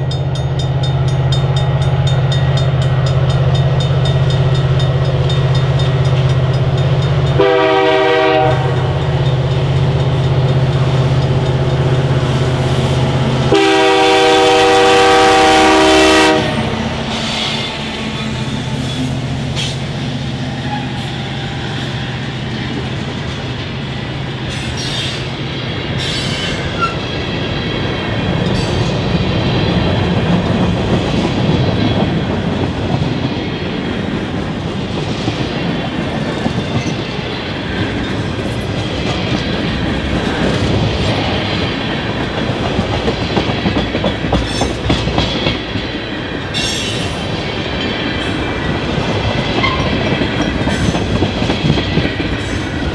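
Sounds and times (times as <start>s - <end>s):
train wheels rumbling: 0.0s - 52.9s
high wheel squeal: 20.4s - 22.8s, 26.0s - 27.2s
clacks over rail joints: 42.0s - 46.0s.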